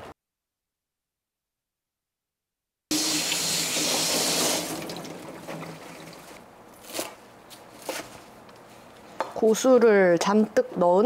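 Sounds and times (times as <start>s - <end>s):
water running from a tap: 2.9s - 6.4s.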